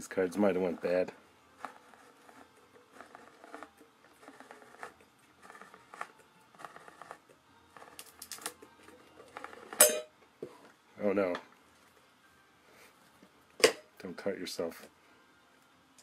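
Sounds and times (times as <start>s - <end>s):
can opener rasping: 0.5s - 9.9s.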